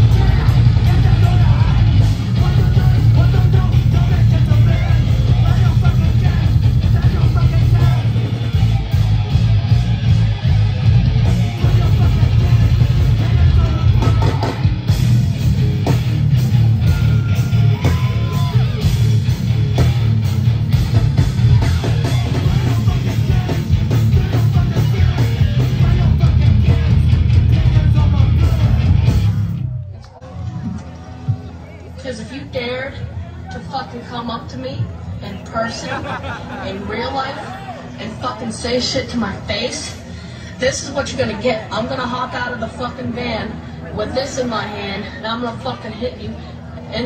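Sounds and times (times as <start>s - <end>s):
distorted guitars: 0.0s - 37.2s
bass guitar: 0.0s - 47.0s.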